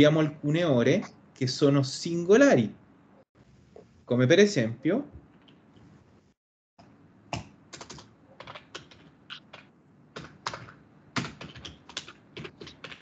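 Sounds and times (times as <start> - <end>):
computer keyboard typing: 7.3 - 13.0.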